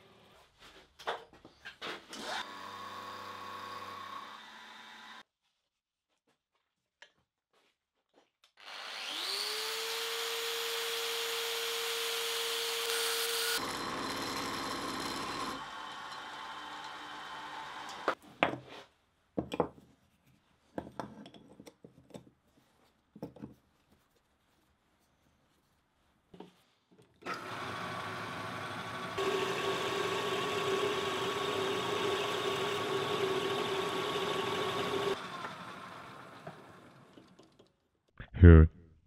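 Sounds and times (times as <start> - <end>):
milling machine cutting metal: 9.0 - 18.2, 27.3 - 36.2.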